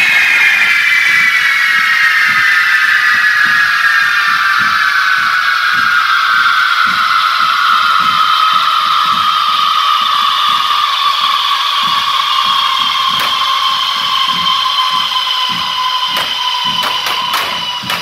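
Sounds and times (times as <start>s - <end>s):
firework fountains hissing whistle: 0.0s - 18.0s
fireworks bursting bangs: 8.0s - 18.0s.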